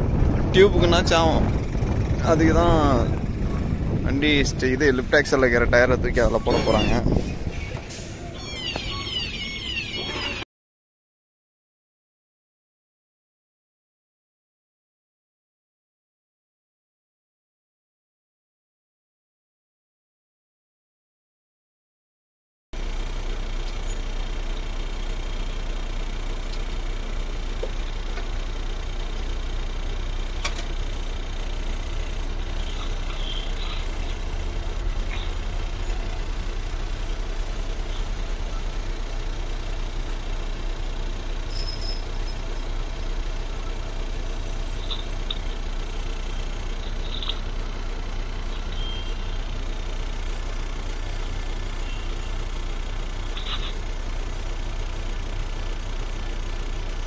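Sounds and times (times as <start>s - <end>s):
diesel truck engine running: 0.0s - 10.4s, 22.8s - 57.0s.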